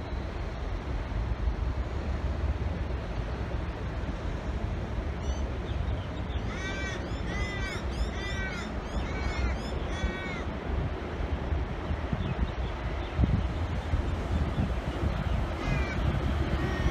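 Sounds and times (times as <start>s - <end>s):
wind rumble on microphone: 0.0s - 16.9s
crow cawing: 6.5s - 10.4s, 15.6s - 16.0s.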